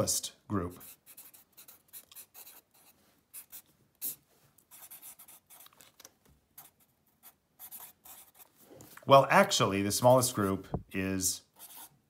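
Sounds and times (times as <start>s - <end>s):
marker scratching on paper: 0.7s - 5.9s, 6.6s - 8.6s, 11.5s - 12.0s.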